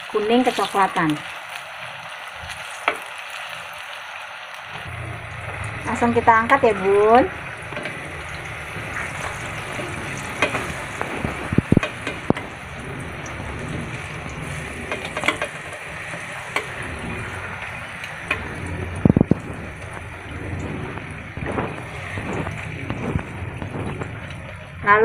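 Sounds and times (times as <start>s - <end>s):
deep-frying sizzle in oil: 0.0s - 25.0s.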